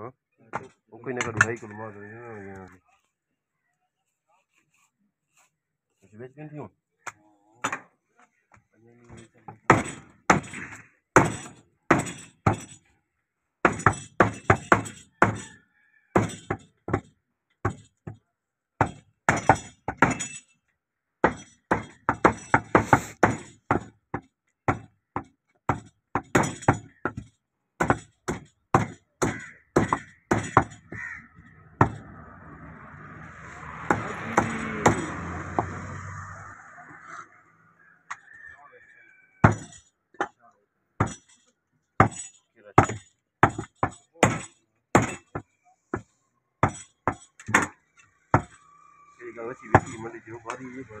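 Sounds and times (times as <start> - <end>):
cleavers chopping on wooden blocks: 9.5 - 12.8, 13.6 - 18.2, 18.8 - 20.4, 21.2 - 32.1, 33.7 - 35.8, 39.4 - 40.4, 41.0 - 41.4, 42.0 - 48.6, 49.6 - 50.7.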